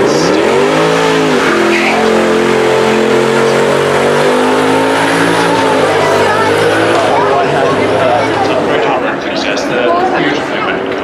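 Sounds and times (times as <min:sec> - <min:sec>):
car engine revving hard: 0:00.0 - 0:09.6.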